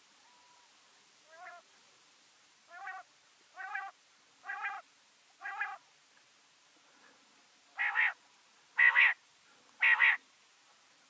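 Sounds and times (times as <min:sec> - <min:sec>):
quail calling: 0:01.3 - 0:01.6, 0:02.7 - 0:04.8, 0:05.4 - 0:05.8, 0:07.8 - 0:08.2, 0:08.8 - 0:09.2, 0:09.8 - 0:10.2.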